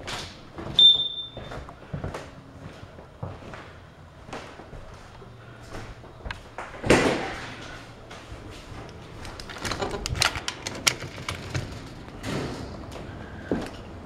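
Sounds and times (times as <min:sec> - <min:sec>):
screen door latch clicking and rattling: 0:09.4 - 0:12.1.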